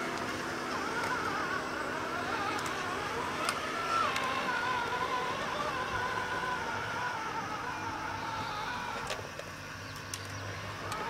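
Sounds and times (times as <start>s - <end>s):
electric motors whining: 0.0s - 11.0s.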